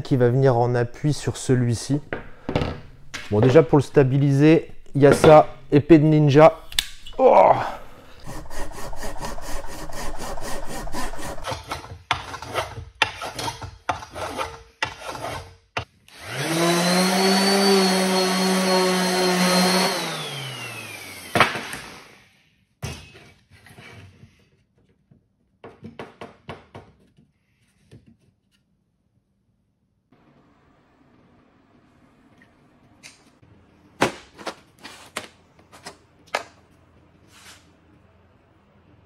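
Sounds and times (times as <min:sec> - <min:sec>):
electric orbital sander: 0:08.2 - 0:11.4, 0:16.1 - 0:22.2
hand saw cutting wood: 0:08.2 - 0:22.0.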